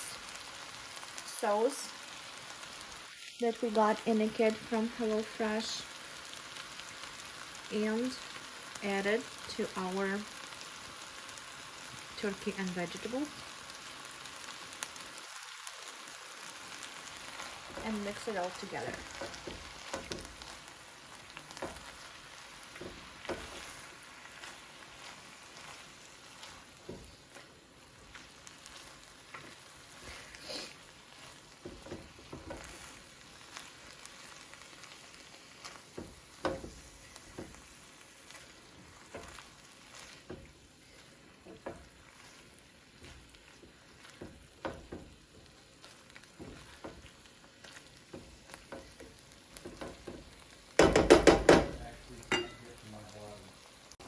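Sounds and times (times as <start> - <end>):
food sizzling in a frying pan: 0.0 - 54.0
utensil scraping and knocking pan: 31.6 - 32.8.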